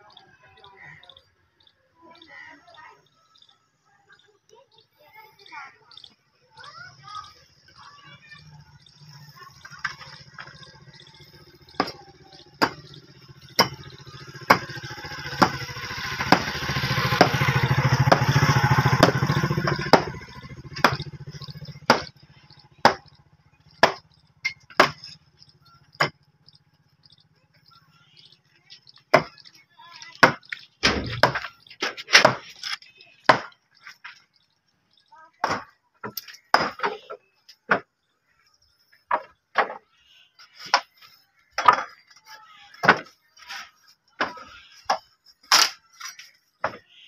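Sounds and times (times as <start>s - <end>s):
hand tool striking masonry: 11.2s - 26.3s, 29.0s - 29.4s, 30.0s - 34.2s, 35.4s - 37.9s, 40.5s - 46.8s.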